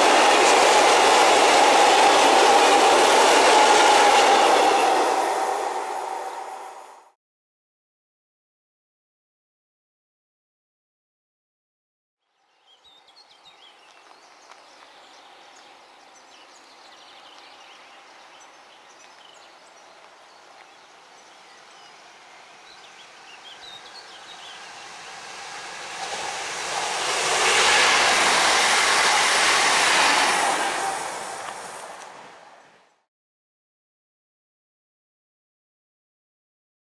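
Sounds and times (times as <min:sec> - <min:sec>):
electric train passing: 0:00.0 - 0:07.2, 0:13.8 - 0:33.0
birds chirping: 0:12.6 - 0:25.4.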